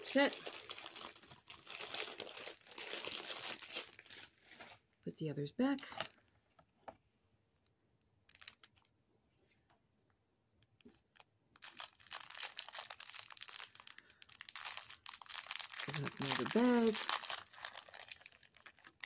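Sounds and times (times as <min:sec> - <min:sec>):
plastic bag crinkling: 0:00.0 - 0:04.8, 0:08.2 - 0:08.9, 0:11.6 - 0:19.0.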